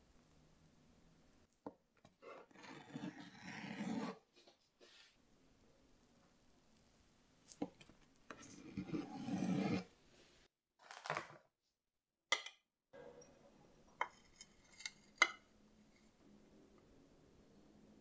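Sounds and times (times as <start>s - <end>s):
cake server scraping plate: 2.2s - 4.2s, 8.3s - 9.9s
knife cutting soft cake: 2.2s - 4.2s, 8.3s - 9.9s.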